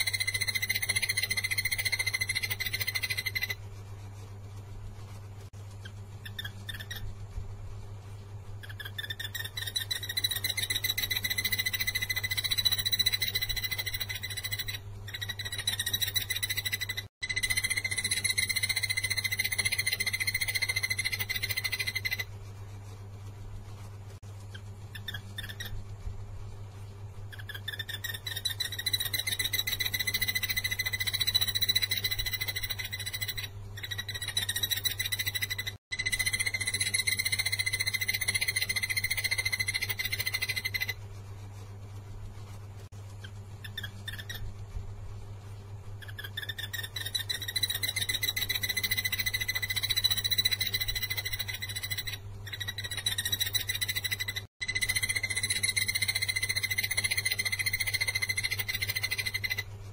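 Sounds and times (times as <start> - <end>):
bird calling fast repeated notes: 0.0 - 3.6, 6.2 - 7.1, 8.6 - 22.3, 24.5 - 25.8, 27.3 - 41.0, 43.6 - 44.5, 46.0 - 59.6
low electrical hum: 0.0 - 59.9.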